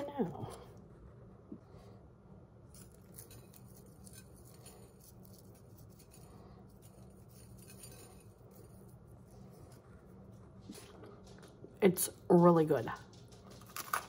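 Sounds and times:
low steady hum: 0:00.0 - 0:14.0
crunching and chewing: 0:13.1 - 0:14.0.

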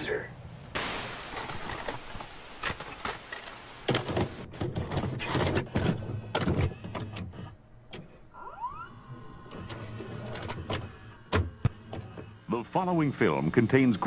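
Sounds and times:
tape mechanism clicks and clunks: 0:02.6 - 0:08.2, 0:09.4 - 0:12.3
rising whir of tape deck: 0:05.7 - 0:12.2.

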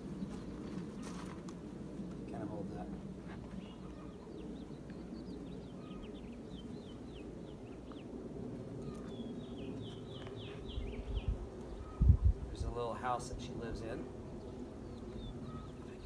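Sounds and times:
small bird chirping: 0:08.8 - 0:12.3, 0:14.4 - 0:16.0.

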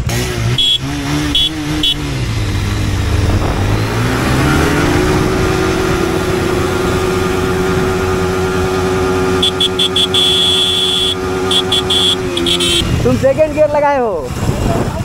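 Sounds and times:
motorcycle engines revving: 0:00.0 - 0:15.0
short horn beeps: 0:00.6 - 0:02.1, 0:09.4 - 0:13.0.

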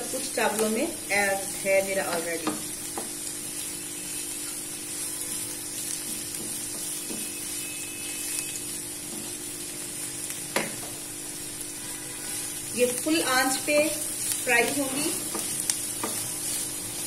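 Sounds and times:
vegetables sizzling in a wok: 0:00.0 - 0:17.0
spatula scraping a wok: 0:11.7 - 0:17.0.

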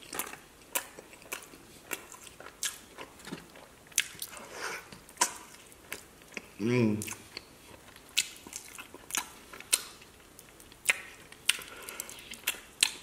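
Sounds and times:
wet chewing: 0:00.0 - 0:13.0
lip smacks: 0:00.1 - 0:13.0.

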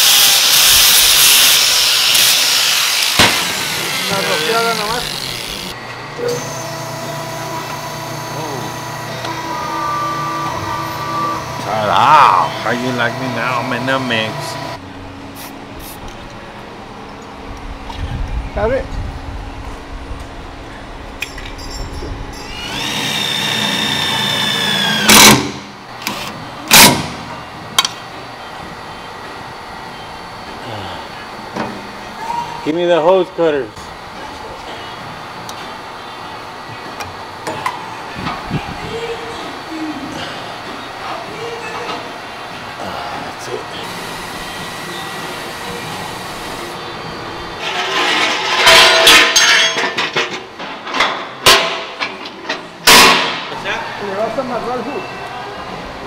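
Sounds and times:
loud bursts of noise: 0:00.0 - 0:05.8
power tool motor whirring: 0:00.0 - 0:14.8, 0:22.4 - 0:26.3
steady background hum: 0:00.0 - 0:56.0
metal ramp scraping and clanking: 0:47.6 - 0:51.2.

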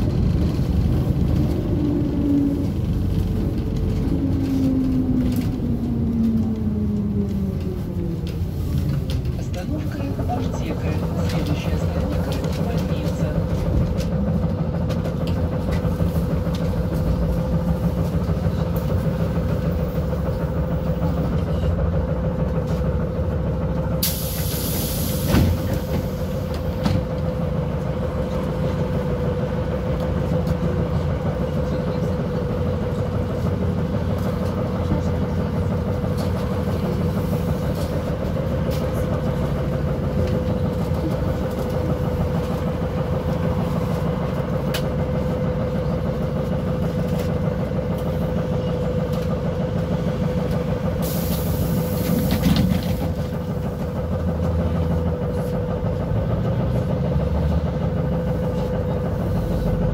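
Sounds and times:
trolleybus interior drone: 0:00.0 - 0:59.9
hiss of air: 0:24.0 - 0:25.8, 0:51.0 - 0:52.4.

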